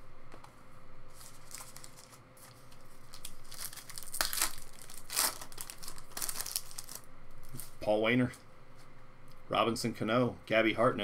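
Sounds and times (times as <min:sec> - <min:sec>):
foil wrapper tearing and crinkling: 0:01.2 - 0:07.7.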